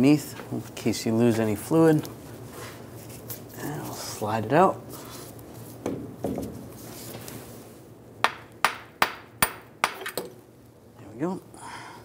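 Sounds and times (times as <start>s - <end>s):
hammer tapping metal: 8.2s - 10.3s.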